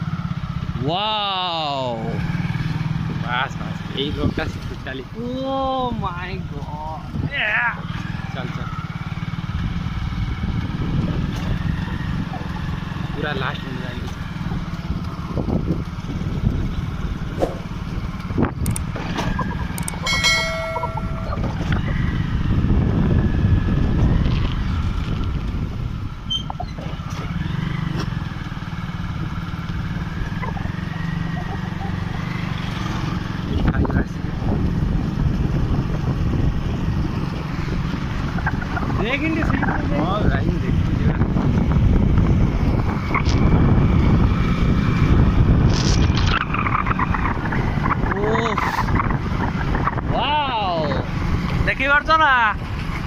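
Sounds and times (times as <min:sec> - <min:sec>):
motorbike engine running: 0:00.0 - 0:53.0
wind on microphone: 0:09.5 - 0:12.6, 0:14.4 - 0:27.0, 0:33.3 - 0:51.8
sharp clicks: 0:18.2 - 0:18.9, 0:19.6 - 0:20.0
ringing chime: 0:20.0 - 0:21.6.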